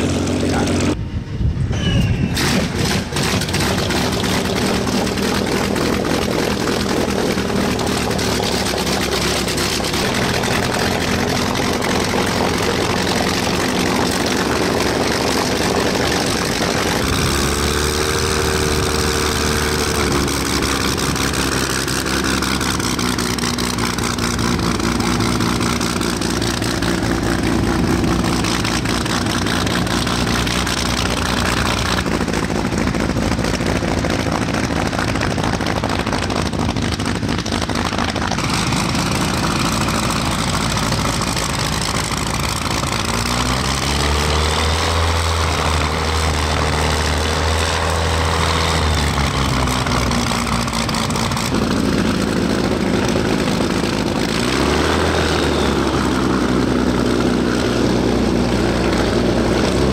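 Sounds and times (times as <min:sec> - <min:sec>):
aircraft engine running: 0:00.0 - 0:59.9.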